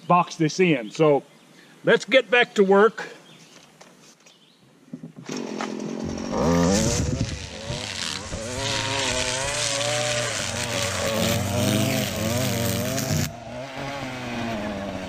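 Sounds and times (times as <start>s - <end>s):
string trimmer engine running: 5.3s - 13.4s.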